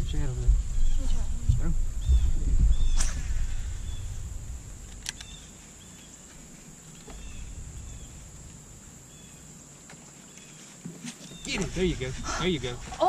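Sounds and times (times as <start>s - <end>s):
wind rumble on microphone: 0.0s - 9.9s, 11.3s - 13.0s
high insect buzzing: 2.8s - 10.5s.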